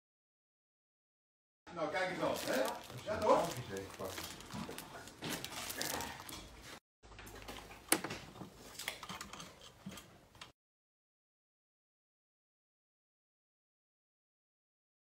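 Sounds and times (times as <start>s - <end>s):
plastic wrapping rustling: 1.9s - 7.8s.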